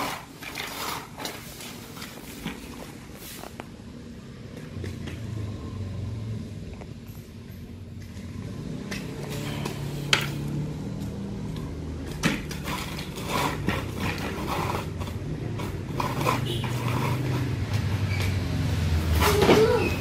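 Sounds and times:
broom scraping concrete floor: 0:00.0 - 0:03.8, 0:08.1 - 0:20.0.

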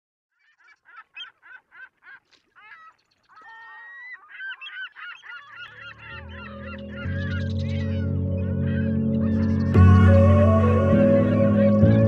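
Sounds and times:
sharp bird calls: 0:00.3 - 0:12.0
music: 0:06.0 - 0:12.0.

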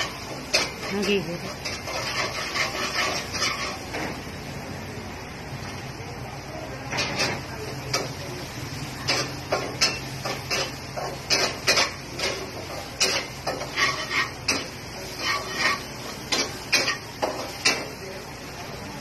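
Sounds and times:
utensils clinking against dishes: 0:00.0 - 0:04.2, 0:09.0 - 0:18.0.

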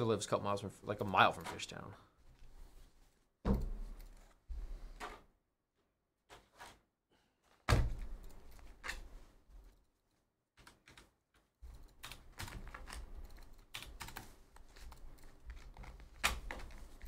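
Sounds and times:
soft knocks and clunks: 0:03.4 - 0:05.2.

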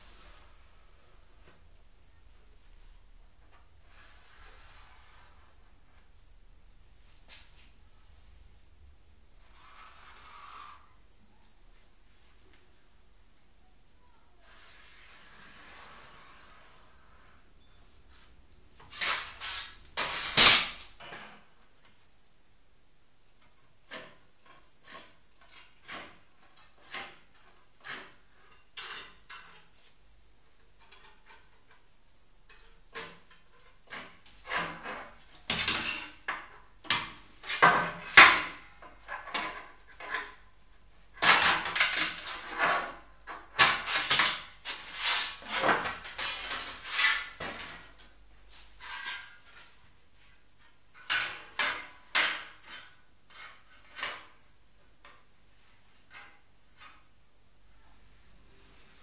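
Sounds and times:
snips cutting sheet steel: 0:18.9 - 0:20.8.

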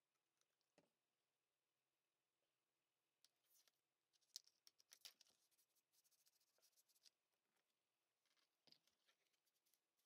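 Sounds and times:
faint plastic clicks and rustles: 0:03.2 - 0:10.0.

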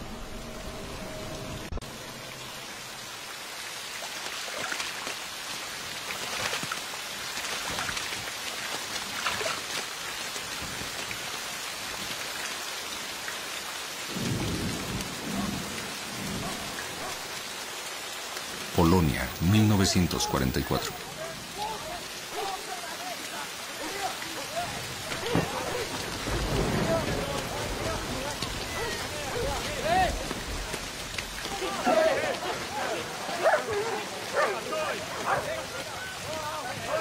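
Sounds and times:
heavy rain splashing into mud: 0:01.9 - 0:37.0
low thunder rumble: 0:25.1 - 0:30.8.

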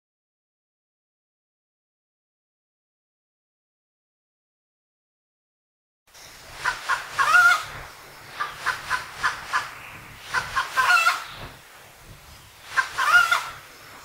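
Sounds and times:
hens clucking and cackling: 0:06.5 - 0:11.4, 0:12.6 - 0:13.7.

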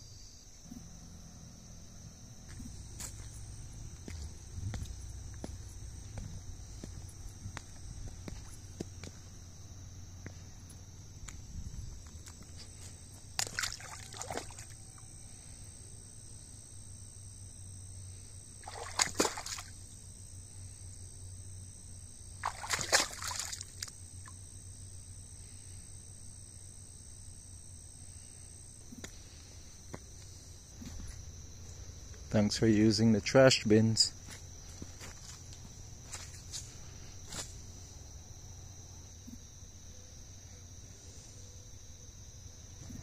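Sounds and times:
crickets droning: 0:00.0 - 0:43.0
water sloshing and splashing: 0:12.2 - 0:14.8, 0:18.6 - 0:19.8, 0:22.4 - 0:24.0.

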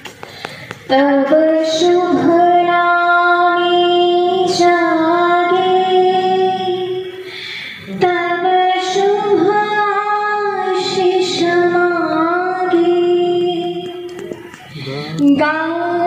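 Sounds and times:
woman singing long notes: 0:00.9 - 0:07.2, 0:07.9 - 0:14.2.

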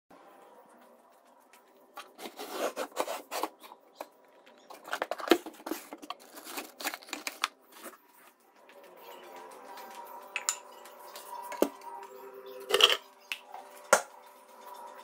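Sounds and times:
cardboard and plastic bags rustling: 0:01.6 - 0:08.9.

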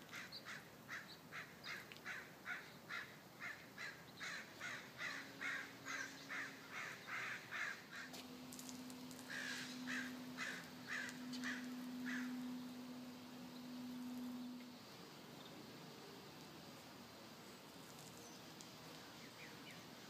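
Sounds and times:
bird calling: 0:00.0 - 0:08.2, 0:09.1 - 0:14.8
steady low hum: 0:00.0 - 0:20.0.

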